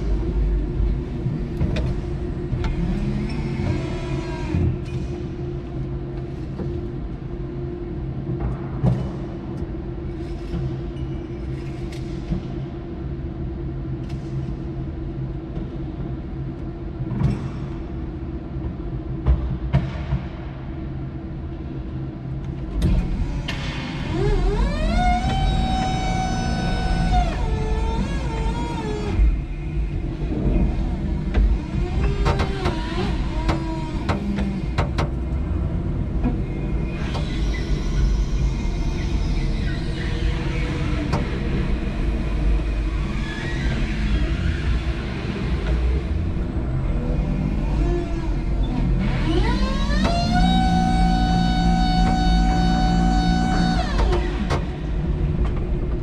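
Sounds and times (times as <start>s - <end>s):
faint whining tones: 21.8s - 56.0s
electric forklift humming: 24.0s - 36.9s, 37.6s - 56.0s.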